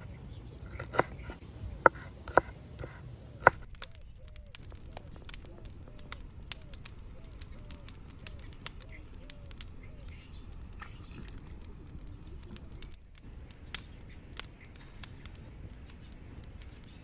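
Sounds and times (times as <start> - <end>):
wood fire crackling: 0.0 - 17.0
knife chopping on wooden board: 0.7 - 3.6.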